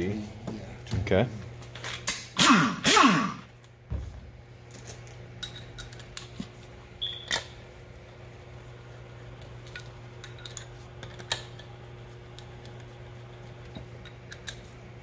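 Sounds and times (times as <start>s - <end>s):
steady low hum: 0.0s - 15.0s
metal bolts clinking: 4.7s - 6.4s.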